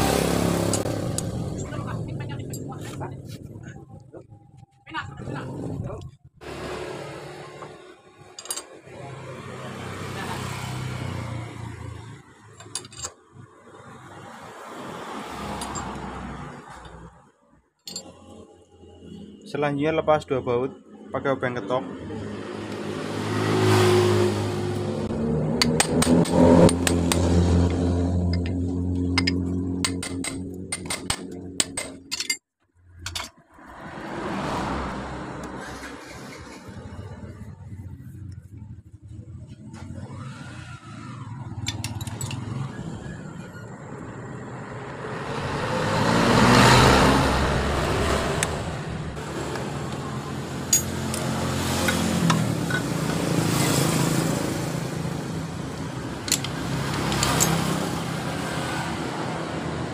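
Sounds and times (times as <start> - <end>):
road traffic rumble: 0.0 - 59.9
wrench clinking on metal: 8.4 - 8.8, 12.6 - 13.2, 15.6 - 16.0, 17.9 - 18.2, 28.3 - 32.4, 41.6 - 42.5, 50.7 - 51.3, 56.2 - 57.7
rush of noise: 44.2 - 52.0
sharp metallic clinks: 50.7 - 51.3.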